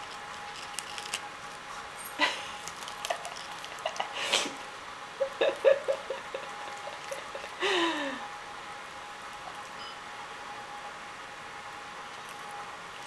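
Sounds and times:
cats crunching leaves: 0.0 - 4.5, 5.5 - 7.6, 12.0 - 13.0.

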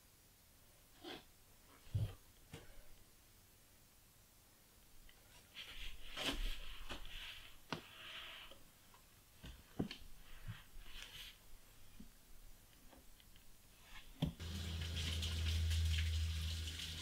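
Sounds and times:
rustling: 5.1 - 8.6.

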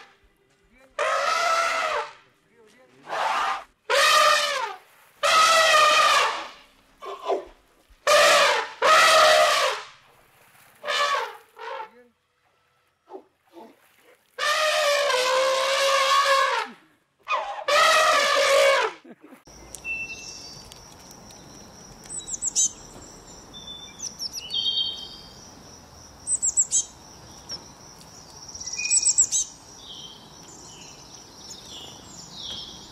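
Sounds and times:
elephant trumpeting: 1.0 - 2.2, 3.0 - 9.9, 10.8 - 11.9, 14.4 - 19.0.

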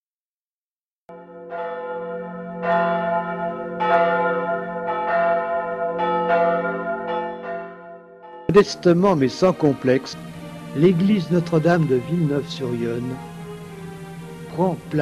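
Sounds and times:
church bells ringing: 1.1 - 15.0
low hum: 8.5 - 15.0.

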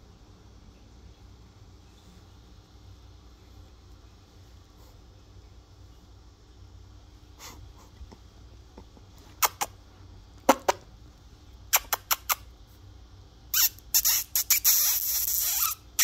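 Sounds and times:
puppy squeaking: 13.5 - 15.9.

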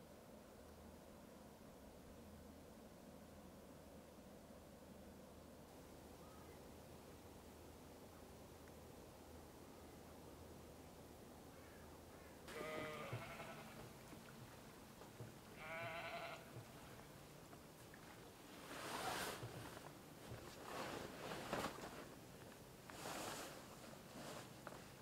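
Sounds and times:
sheep bleating: 12.5 - 13.8, 15.6 - 16.6
plastic tarpaulin rustling: 18.4 - 25.0.

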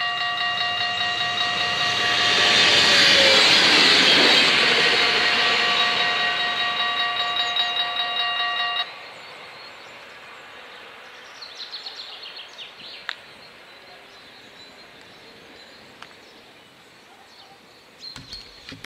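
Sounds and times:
level crossing warning bells: 0.0 - 9.0.

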